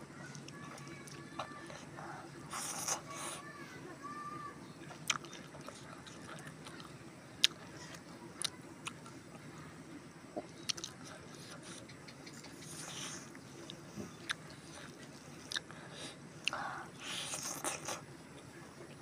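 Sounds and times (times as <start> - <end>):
mouth clicks and smacks: 4.9 - 9.1, 10.4 - 14.8, 15.4 - 15.8
person chewing food: 4.9 - 9.1, 10.4 - 11.9, 12.6 - 18.0.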